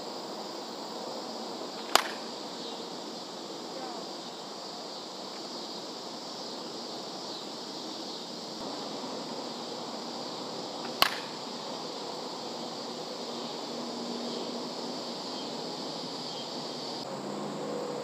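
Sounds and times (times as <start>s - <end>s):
outdoor hiss: 0.0s - 18.0s
bat striking softball: 1.8s - 2.4s, 10.8s - 11.4s.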